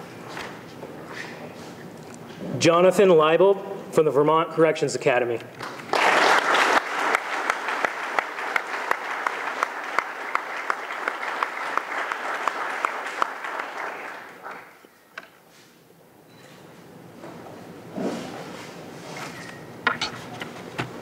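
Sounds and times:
audience applauding: 5.6s - 14.9s.

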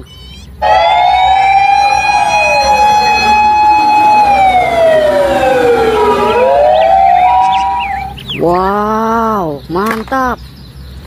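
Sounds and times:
second siren tone: 0.6s - 8.2s
siren wailing: 0.6s - 8.3s.

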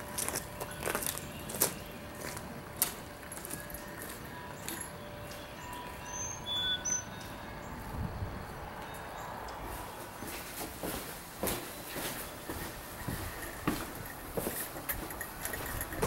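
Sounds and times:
footsteps on gravel: 0.0s - 6.1s, 7.2s - 16.0s
high bird chirps: 4.6s - 7.4s.

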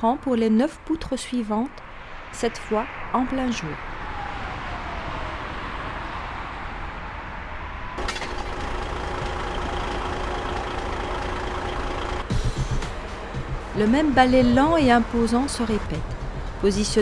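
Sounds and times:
vehicle road noise: 0.0s - 17.0s
passing tone falling in pitch: 3.2s - 8.0s
truck engine idling: 8.0s - 14.8s.

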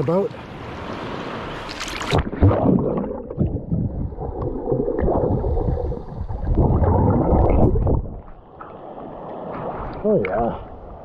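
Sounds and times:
muffled underwater churning water: 0.4s - 11.0s.

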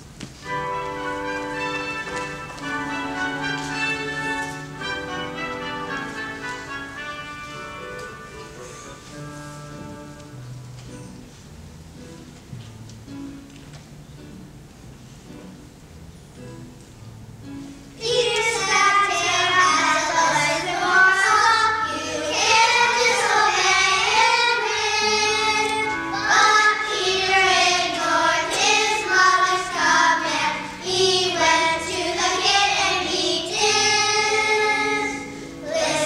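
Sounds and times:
instrumental accompaniment: 0.0s - 36.0s
children singing: 18.0s - 36.0s.

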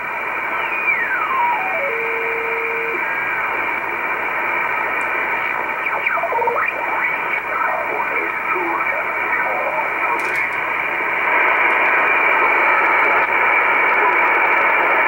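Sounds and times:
radio static hiss: 0.0s - 15.0s
radio carrier whistles: 0.3s - 10.4s.

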